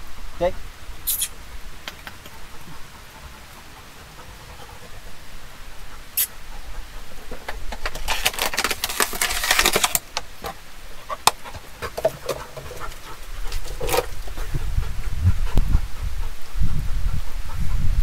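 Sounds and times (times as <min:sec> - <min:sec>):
plastic bottle crinkling: 0:07.7 - 0:10.3.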